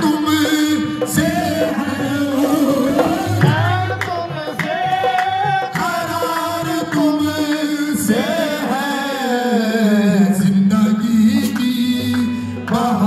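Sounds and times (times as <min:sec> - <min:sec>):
tabla strokes: 0:00.0 - 0:09.3.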